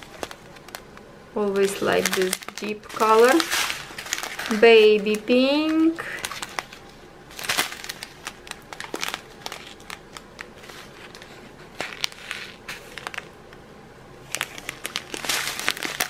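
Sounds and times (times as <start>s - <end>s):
plastic bags crinkling: 0.0s - 13.4s, 14.2s - 16.0s
beads clicking inside bags: 1.6s - 6.8s, 7.4s - 13.4s, 14.3s - 16.0s.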